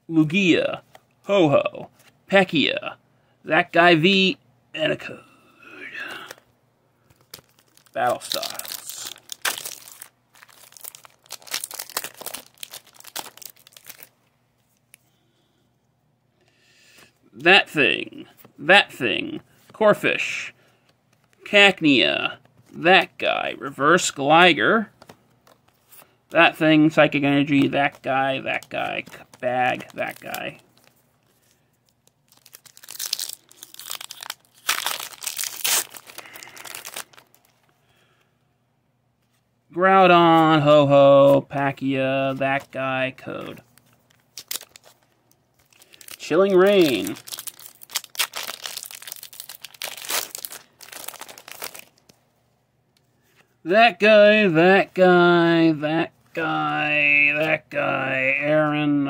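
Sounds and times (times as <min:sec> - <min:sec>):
foil wrapper crinkling and tearing: 0:07.2 - 0:14.2, 0:27.8 - 0:37.7, 0:43.7 - 0:52.2.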